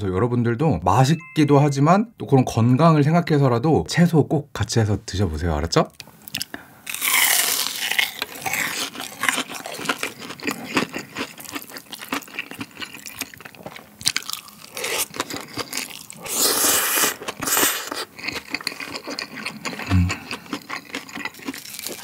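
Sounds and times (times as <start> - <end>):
crunchy chewing: 6.3 - 22.0.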